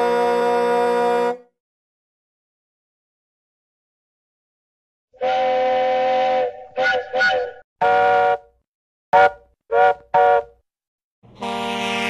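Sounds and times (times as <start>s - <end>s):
steam locomotive whistle: 0.0s - 1.5s, 5.2s - 8.5s, 9.2s - 10.6s, 11.3s - 12.0s
truck air horn blast: 0.0s - 1.5s, 11.3s - 12.0s.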